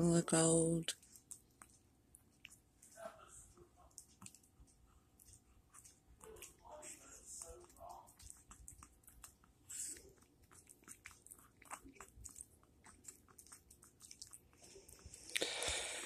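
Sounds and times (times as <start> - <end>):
dog chewing bread: 3.9 - 15.3.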